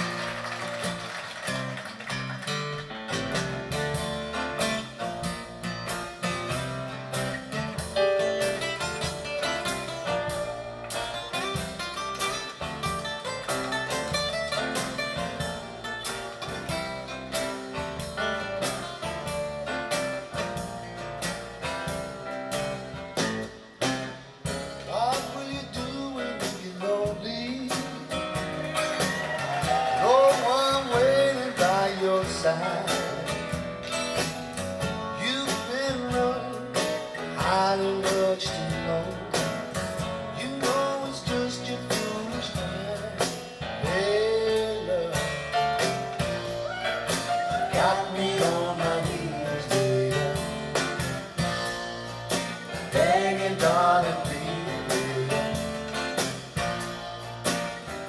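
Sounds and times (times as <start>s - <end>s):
blues-rock music from loudspeakers: 0.0s - 58.0s
person singing: 24.9s - 28.4s, 29.4s - 33.6s, 35.0s - 50.8s, 52.8s - 56.0s.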